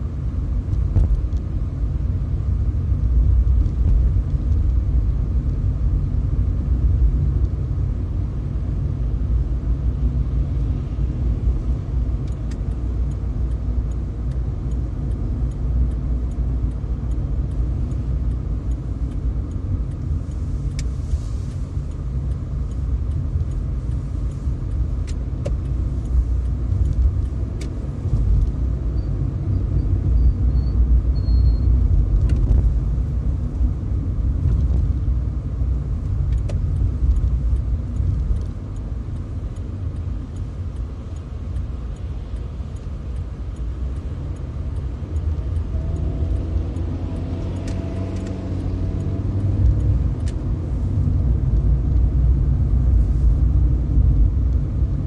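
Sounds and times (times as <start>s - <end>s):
car engine and tyres rumbling: 0.0s - 55.0s
faint ticks: 11.5s - 29.2s, 35.9s - 54.9s.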